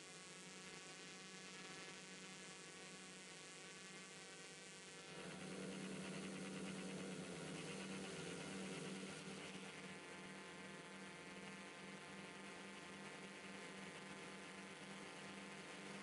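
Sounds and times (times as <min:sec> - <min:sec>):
drone propellers humming: 0:05.1 - 0:09.8.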